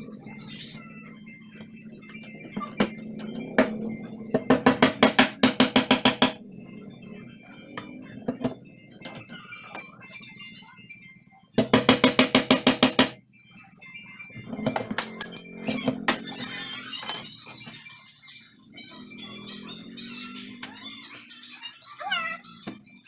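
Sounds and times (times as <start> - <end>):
hammer tapping on wooden door: 4.4 - 6.4, 11.6 - 13.2
tools knocking and clinking: 14.5 - 16.3.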